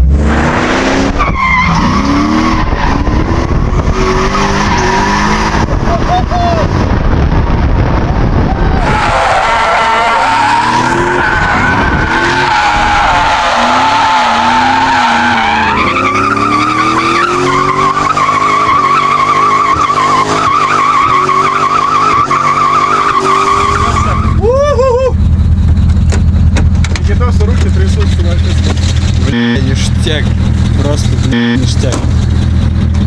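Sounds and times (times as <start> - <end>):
engine revving: 0.0 - 8.9, 10.3 - 33.0
tyres squealing: 8.7 - 24.9.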